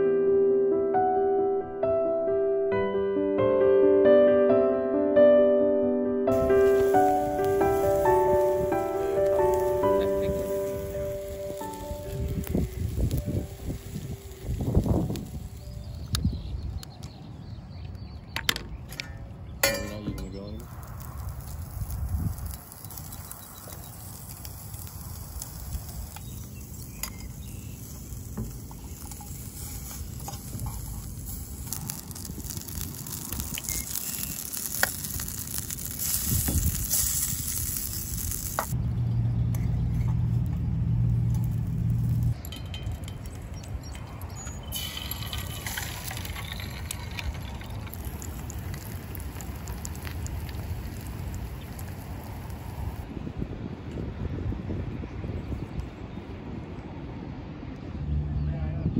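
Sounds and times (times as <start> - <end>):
food sizzling in a pan: 6.3 - 16.1, 20.7 - 38.8, 44.8 - 53.0.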